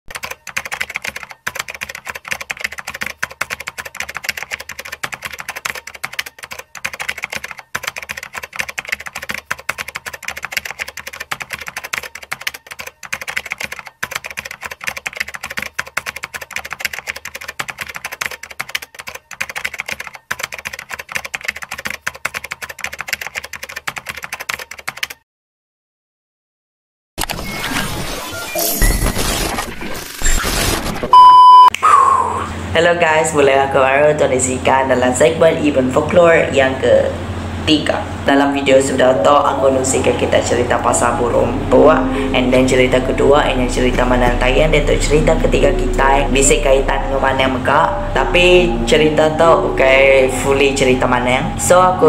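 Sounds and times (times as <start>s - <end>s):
rapid keyboard typing: 0.1s - 25.2s.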